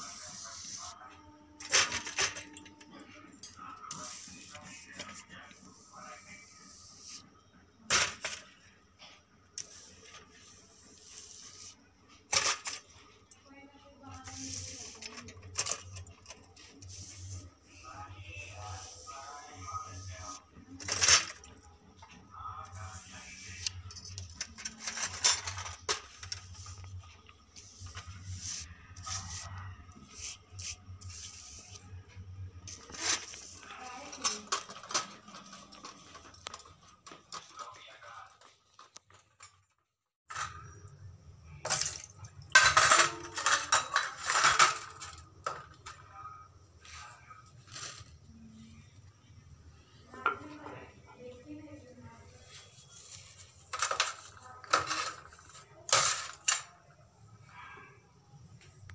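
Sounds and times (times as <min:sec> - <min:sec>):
utensils clattering on steel plate: 0:01.6 - 0:02.7, 0:12.3 - 0:12.9, 0:14.4 - 0:17.0, 0:20.8 - 0:21.7, 0:23.7 - 0:26.9, 0:34.0 - 0:37.7, 0:41.6 - 0:46.0, 0:53.7 - 0:56.7.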